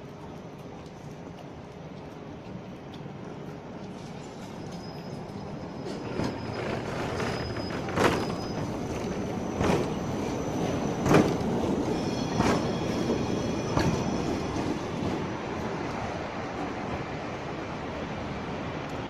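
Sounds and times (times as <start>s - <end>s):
tram rumbling past: 3.0s - 19.0s
sharp clacks of tram wheels: 3.9s - 17.1s.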